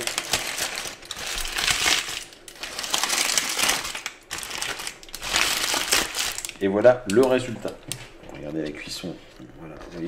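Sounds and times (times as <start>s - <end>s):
baking paper crinkling: 0.0s - 10.0s.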